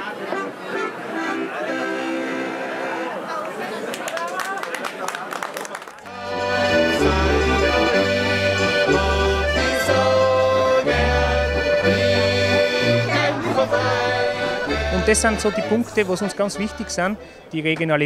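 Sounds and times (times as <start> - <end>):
button accordion playing chords: 0.0 - 3.2, 6.1 - 17.5
double bass: 6.1 - 17.2.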